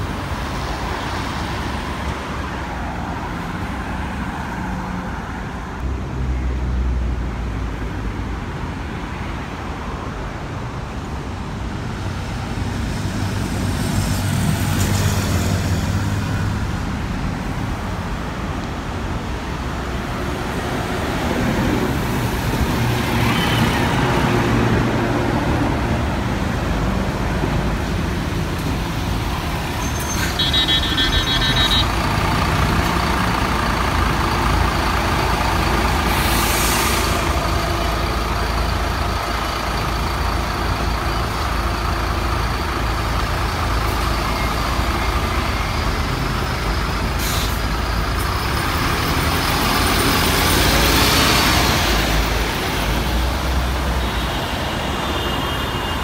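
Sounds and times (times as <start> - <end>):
bus engine running: 11.2 - 55.2
air brakes hissing: 36.0 - 37.4, 47.0 - 48.3.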